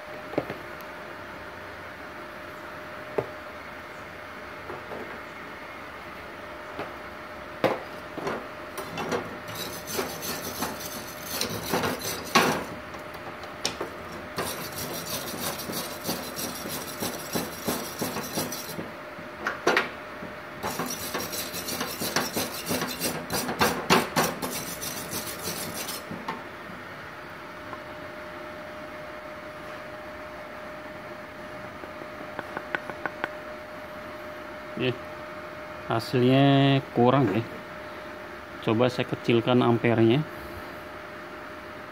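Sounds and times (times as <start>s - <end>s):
wire brush scrubbing metal: 8.8s - 12.8s, 14.1s - 18.9s, 20.6s - 26.2s.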